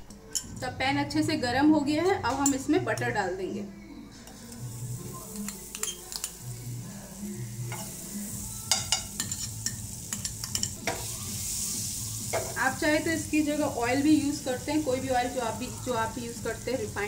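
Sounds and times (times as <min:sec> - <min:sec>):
butter sizzling in frying pan: 0:04.6 - 0:17.0
spoon tapping and scraping pan: 0:08.7 - 0:11.1, 0:12.3 - 0:12.6.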